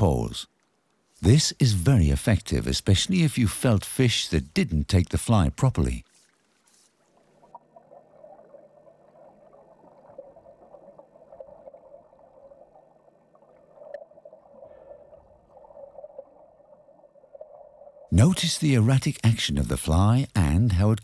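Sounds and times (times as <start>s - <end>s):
underwater gurgling wash: 7.1s - 18.1s.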